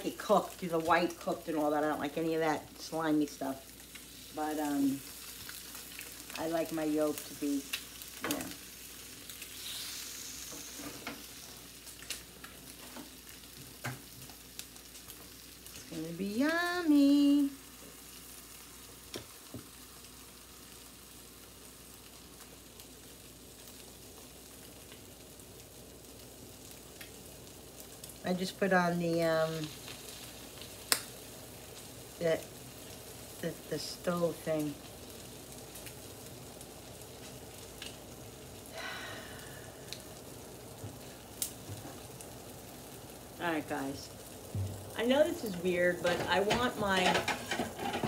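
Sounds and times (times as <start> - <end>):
eggs sizzling in a pan: 0.0 - 48.0.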